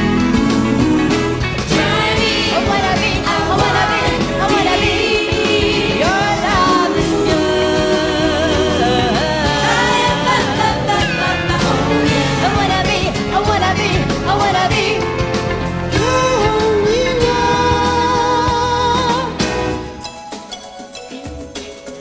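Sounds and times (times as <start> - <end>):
live band playing: 0.0 - 22.0
woman singing with vibrato: 0.3 - 15.1.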